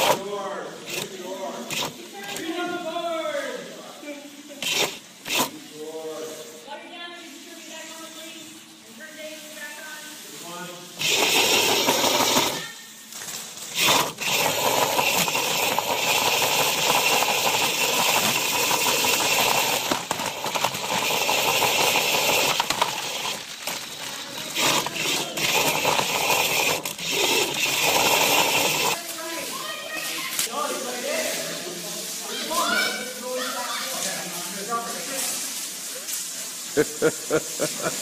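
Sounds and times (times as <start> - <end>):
drive motors whining: 11.0 - 12.7, 13.7 - 29.0.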